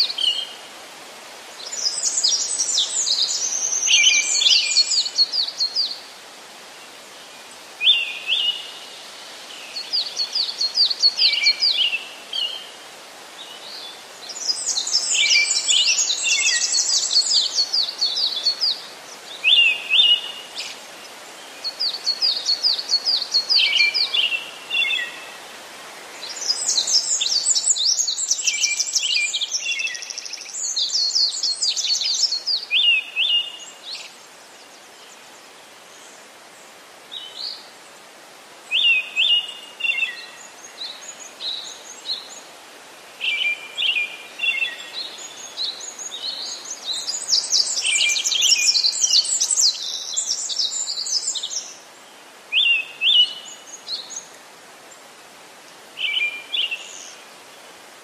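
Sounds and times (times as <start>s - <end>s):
faint steady hiss: 0.0s - 58.0s
birds chirping and trilling: 43.2s - 54.4s.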